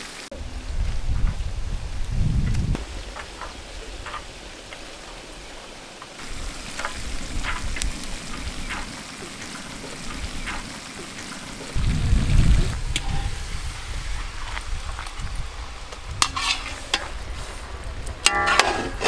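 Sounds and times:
noodles sizzling in a wok: 12.9 - 17.7.

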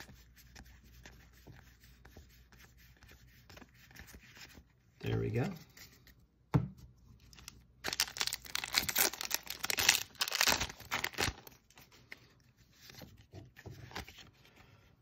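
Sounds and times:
foil wrapper tearing and crinkling: 7.8 - 11.6.

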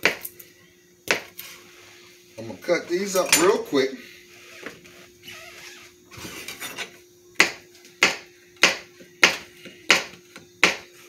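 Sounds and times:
knife chopping on cutting board: 7.4 - 10.9.

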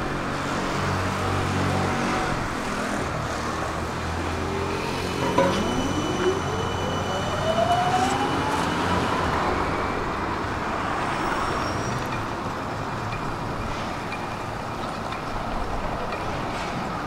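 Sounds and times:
street traffic: 0.0 - 17.0
tram traction motor whine: 2.0 - 10.3.

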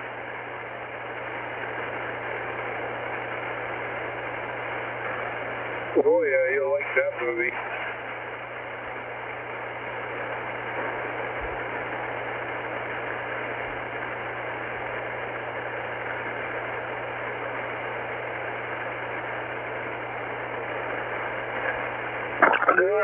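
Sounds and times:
low steady hum: 0.0 - 23.0
radio static hiss: 0.0 - 23.0.

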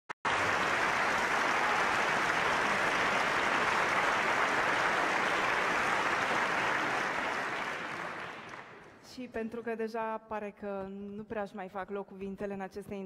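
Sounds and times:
audience applauding: 0.2 - 9.0.

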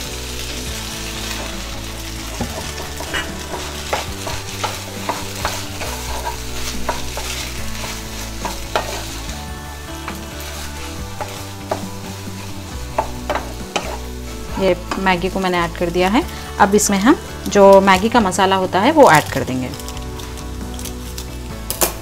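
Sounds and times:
noodles and egg sizzling in oil: 0.0 - 22.0
spatula scraping and tapping pan: 1.2 - 9.4, 10.0 - 15.3.

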